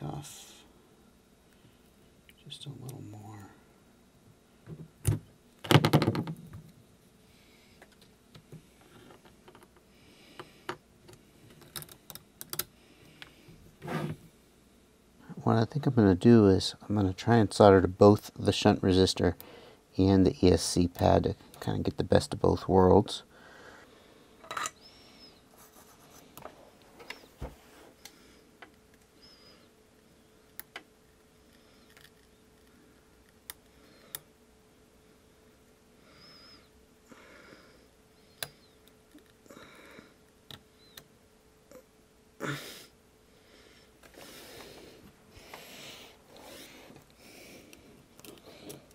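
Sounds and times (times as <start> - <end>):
faint steady hum: 0.0 - 48.9
fingers clicking and rubbing wire: 11.1 - 13.3, 48.1 - 48.9.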